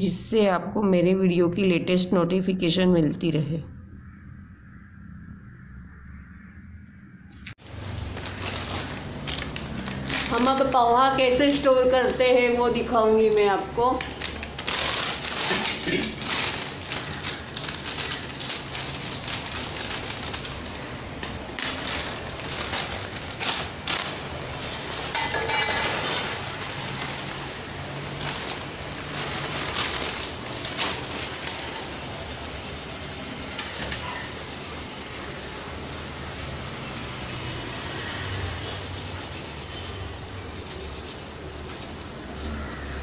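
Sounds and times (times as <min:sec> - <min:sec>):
plastic packet crinkling: 0:07.6 - 0:11.0, 0:13.9 - 0:32.3.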